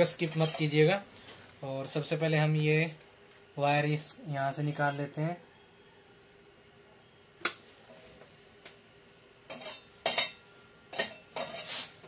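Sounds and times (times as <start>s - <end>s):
wire leads scraping on metal: 10.9s - 12.0s.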